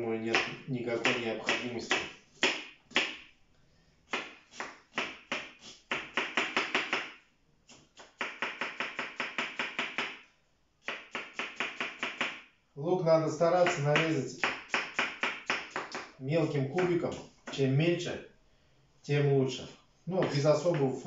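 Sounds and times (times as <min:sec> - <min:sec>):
knife chopping onion on board: 0:00.3 - 0:03.2, 0:04.1 - 0:10.2, 0:10.8 - 0:12.4, 0:13.6 - 0:16.1, 0:16.7 - 0:17.6.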